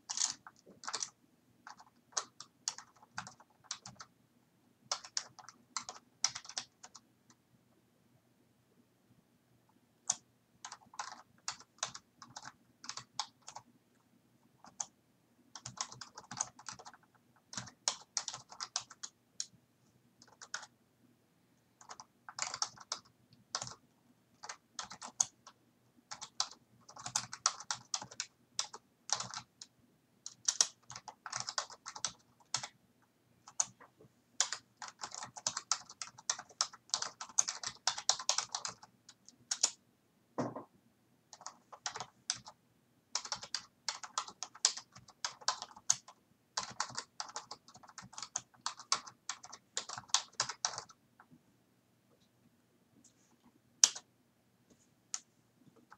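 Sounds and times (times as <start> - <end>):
typing on computer keyboard: 0.0 - 4.1, 4.9 - 7.4, 10.0 - 13.7, 14.6 - 14.9, 15.5 - 19.5, 20.2 - 20.7, 21.8 - 23.8, 24.4 - 32.8, 33.4 - 33.8, 34.4 - 39.8, 41.3 - 51.0, 53.8 - 54.1.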